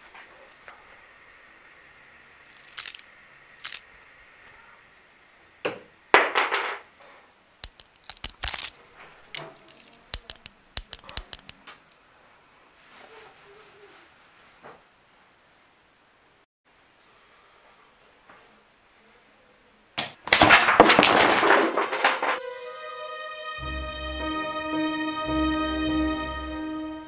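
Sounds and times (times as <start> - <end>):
sharp clicks and cracks: 2.5 - 3.8, 7.6 - 12.0.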